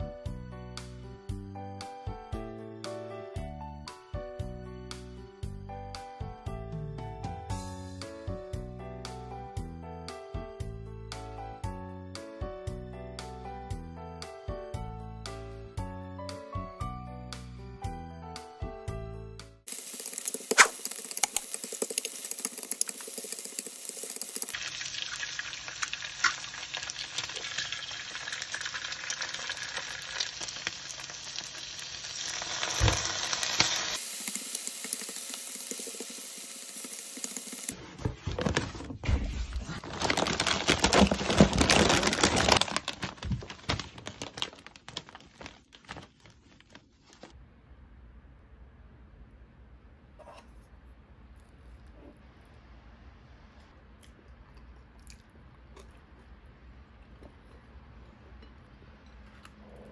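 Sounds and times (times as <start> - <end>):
food sizzling in a frying pan: 19.7 - 37.8.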